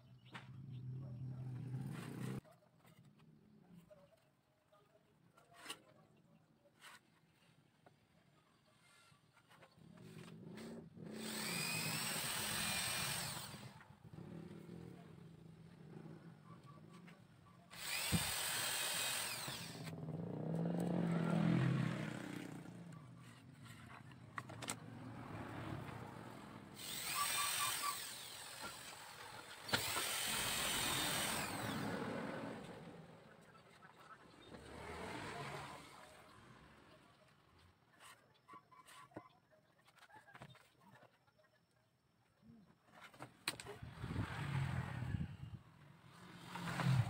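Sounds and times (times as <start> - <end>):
electric hand drill whirring: 11.1 - 13.8, 17.7 - 19.9, 26.7 - 32.8.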